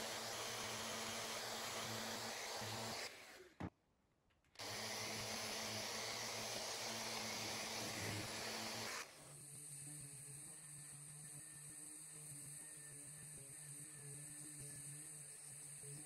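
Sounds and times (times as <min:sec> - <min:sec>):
orbital sander running: 0:00.0 - 0:03.5, 0:04.6 - 0:16.0.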